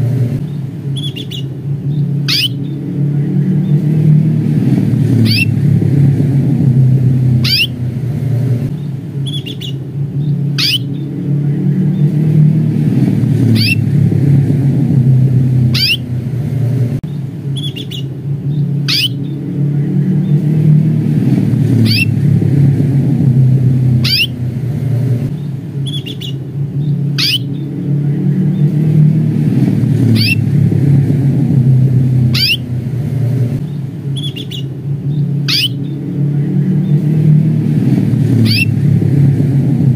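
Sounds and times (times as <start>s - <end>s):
canary chirping: 0.0s - 2.8s, 5.2s - 5.6s, 7.4s - 7.8s, 8.8s - 11.1s, 13.4s - 13.9s, 15.6s - 16.1s, 17.1s - 19.4s, 21.7s - 22.2s, 24.0s - 24.4s, 25.4s - 27.7s, 30.0s - 30.5s, 32.2s - 32.8s, 33.6s - 36.0s, 38.4s - 38.8s
low rumble: 0.0s - 39.9s.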